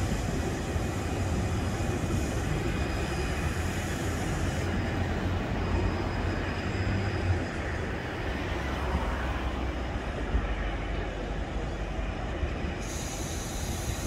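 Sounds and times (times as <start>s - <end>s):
high hiss: 0.0s - 5.9s, 12.7s - 14.0s
airport background rumble: 0.0s - 14.0s.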